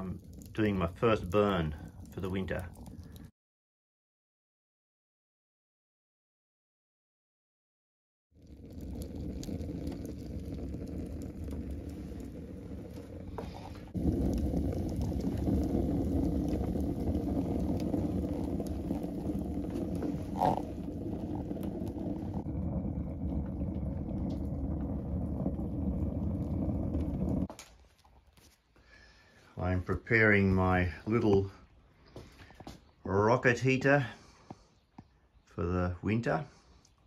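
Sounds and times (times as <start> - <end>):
fire crackling: 0.0 - 3.3, 8.4 - 35.3
fire draft rushing: 0.0 - 3.3, 8.4 - 34.7.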